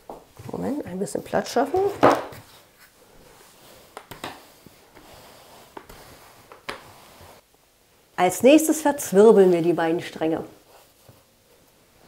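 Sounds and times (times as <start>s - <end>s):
rolling pin rolling dough: 0.1s - 7.4s.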